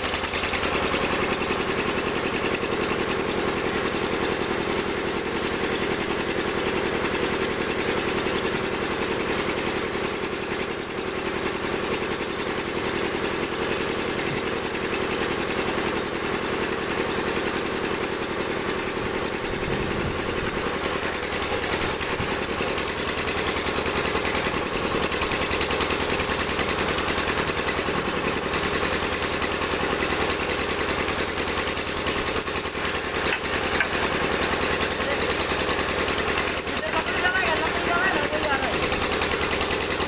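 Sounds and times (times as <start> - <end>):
cutting torch hissing: 0.6 - 39.1
steady hum: 19.0 - 22.5.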